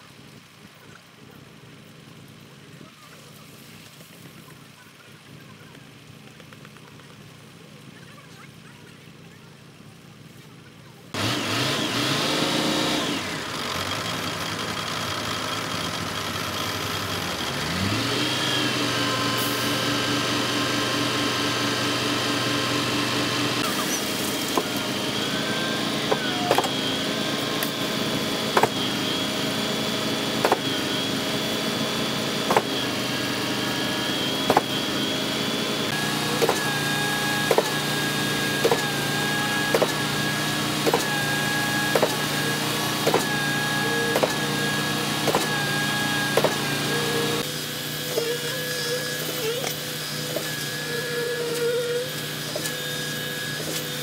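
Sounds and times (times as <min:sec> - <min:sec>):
diesel engines running: 0:00.0 - 0:54.0.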